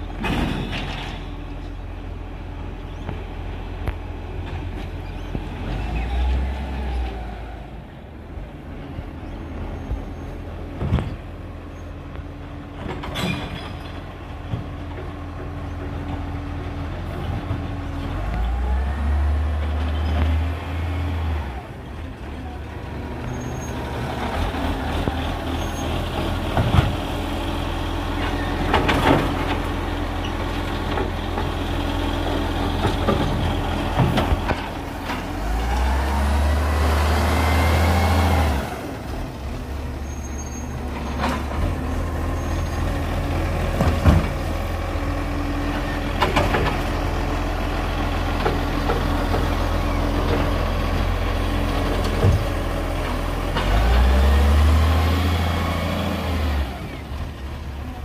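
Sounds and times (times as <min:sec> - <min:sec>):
garbage truck engine revving: 0:22.6 - 0:58.0.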